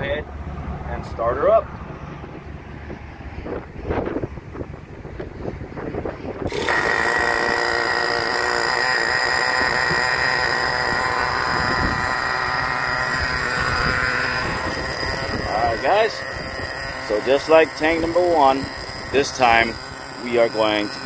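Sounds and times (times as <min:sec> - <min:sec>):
model engine starting and running: 0:04.6 - 0:21.0.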